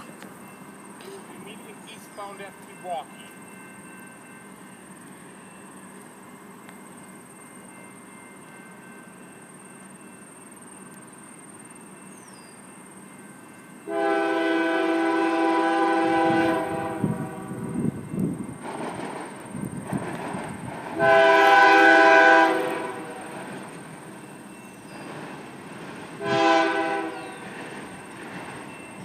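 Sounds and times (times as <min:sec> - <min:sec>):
locomotive air horn: 0:13.9 - 0:17.7, 0:21.0 - 0:23.3, 0:26.2 - 0:27.2.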